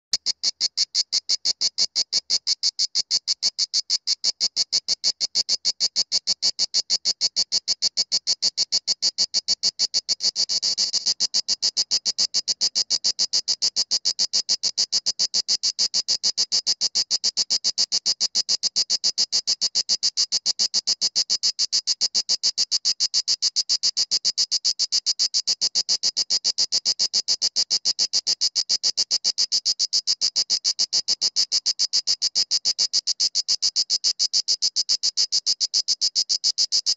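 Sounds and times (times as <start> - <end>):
cicada singing: 0.2 - 14.0.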